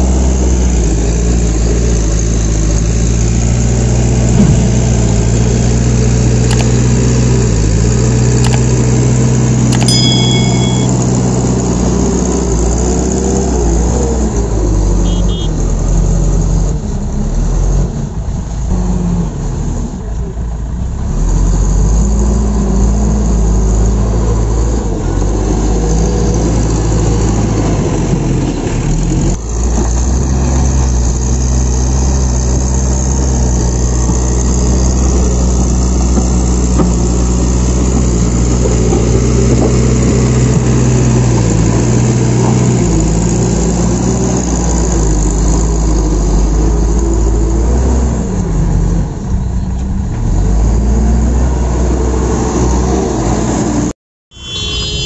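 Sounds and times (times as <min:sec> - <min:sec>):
diesel engine running: 0:00.0 - 0:09.6.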